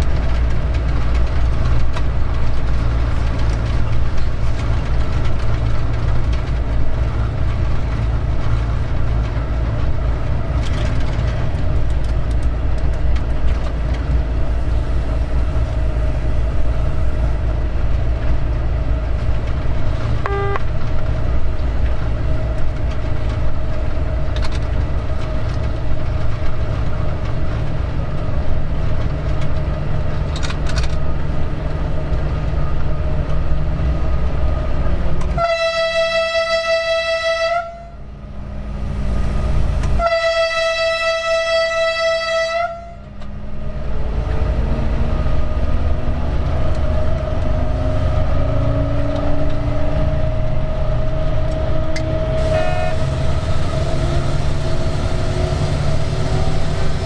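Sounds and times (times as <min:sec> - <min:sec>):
diesel locomotive rumbling: 0:00.0 - 0:57.0
locomotive horn blast: 0:20.2 - 0:20.8, 0:35.3 - 0:38.1, 0:39.8 - 0:43.1, 0:52.2 - 0:54.4.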